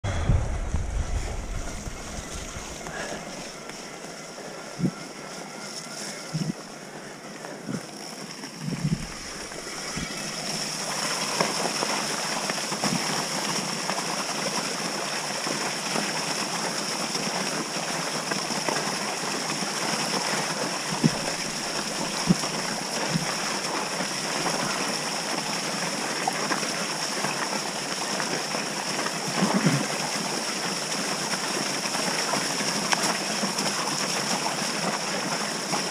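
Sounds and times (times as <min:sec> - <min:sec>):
tyre and wind rush: 0:00.0 - 0:04.0.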